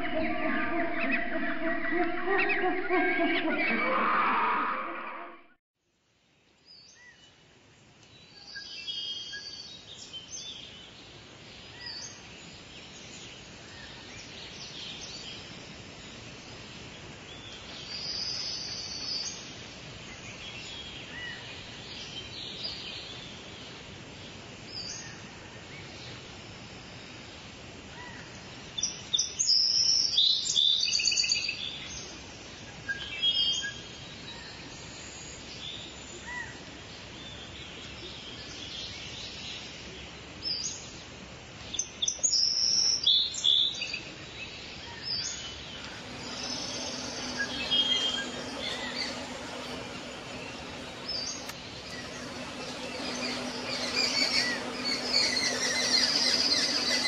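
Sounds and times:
birds chirping and calling: 0:00.0 - 0:05.2, 0:45.8 - 0:57.0
outdoor background hiss: 0:05.9 - 0:30.4
high chattering bird calls: 0:45.8 - 0:57.0.

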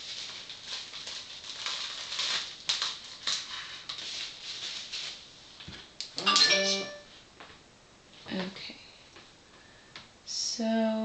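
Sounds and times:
cling wrap crinkling: 0:00.0 - 0:05.3.

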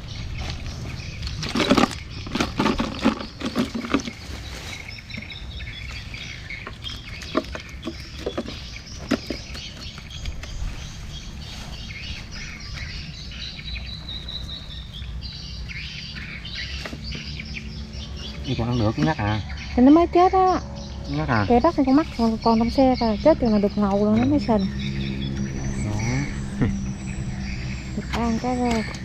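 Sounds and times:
birds chirping: 0:00.0 - 0:29.0
sharp knocking and rustling: 0:00.4 - 0:05.4, 0:06.6 - 0:10.7.

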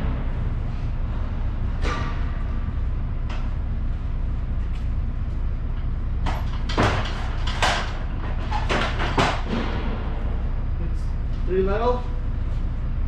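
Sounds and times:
steady low hum: 0:00.0 - 0:13.0
pallets knocking and clattering: 0:06.2 - 0:10.1.

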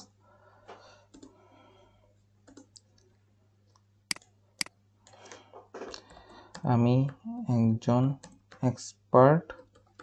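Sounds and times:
computer mouse clicks: 0:01.1 - 0:01.4, 0:02.4 - 0:03.0.

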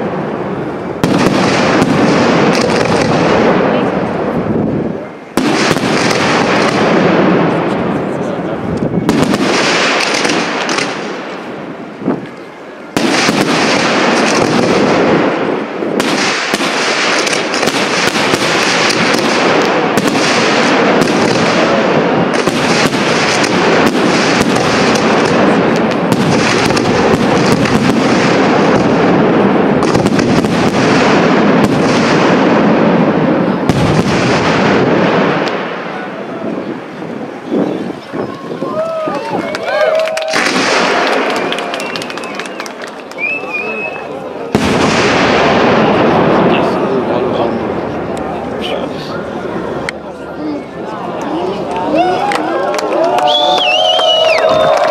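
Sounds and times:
firework shells bursting: 0:00.0 - 0:04.1, 0:08.8 - 0:11.5, 0:12.2 - 0:32.6.

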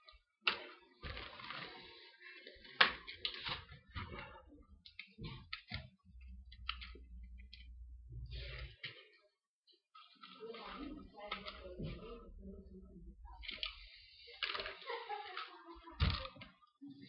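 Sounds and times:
plastic parts clicking and rustling: 0:00.0 - 0:07.8, 0:10.0 - 0:12.0, 0:13.4 - 0:17.0.

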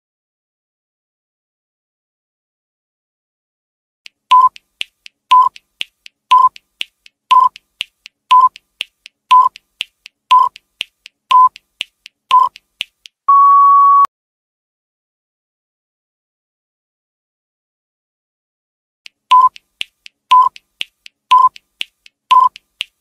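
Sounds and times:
faint ticks: 0:04.1 - 0:13.2, 0:19.1 - 0:23.0
short electronic beeps: 0:04.3 - 0:04.6, 0:05.3 - 0:05.6, 0:06.3 - 0:06.6, 0:07.3 - 0:07.6, 0:08.3 - 0:08.6, 0:09.3 - 0:09.6, 0:10.3 - 0:10.6, 0:11.3 - 0:11.6, 0:12.3 - 0:12.6, 0:13.3 - 0:14.1, 0:19.3 - 0:19.6, 0:20.3 - 0:20.6, 0:21.3 - 0:21.6, 0:22.3 - 0:22.6
long steady beep: 0:13.3 - 0:14.1, 0:19.3 - 0:19.6, 0:21.3 - 0:21.5, 0:22.3 - 0:22.6.

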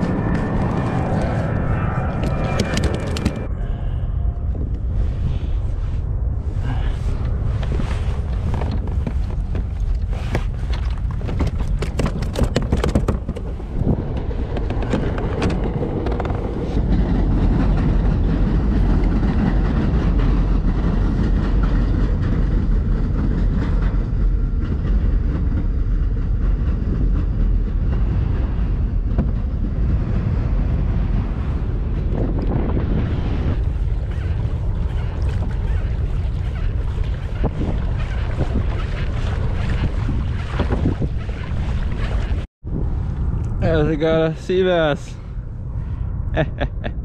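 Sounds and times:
wind buffeting microphone: 0:00.0 - 0:47.0
fishing gear clicking and knocking: 0:02.2 - 0:03.5, 0:08.5 - 0:16.6.

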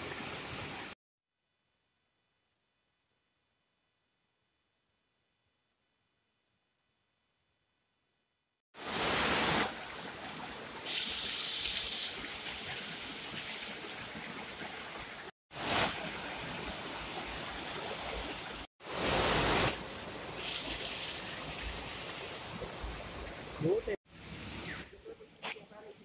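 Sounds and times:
waterfall splashing over rocks: 0:08.8 - 0:24.0.

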